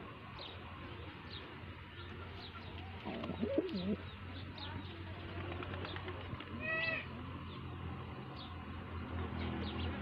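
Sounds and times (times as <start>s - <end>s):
pigeon cooing: 3.0s - 4.0s.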